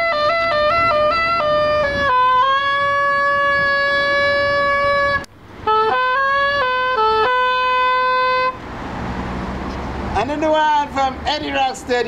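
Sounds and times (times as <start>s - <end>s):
soprano saxophone solo: 0.0s - 8.6s.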